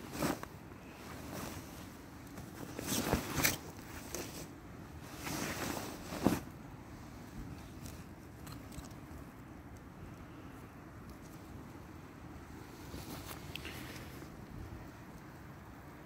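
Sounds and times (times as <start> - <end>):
nylon clothing rustling: 0.0 - 8.6, 12.6 - 14.4.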